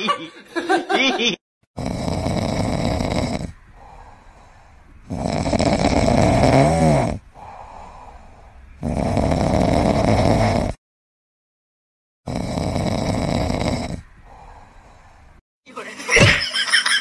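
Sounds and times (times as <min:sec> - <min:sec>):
loud snoring: 0:01.8 - 0:10.8, 0:12.3 - 0:15.1
quiet breathing: 0:02.1 - 0:08.9, 0:13.6 - 0:15.4.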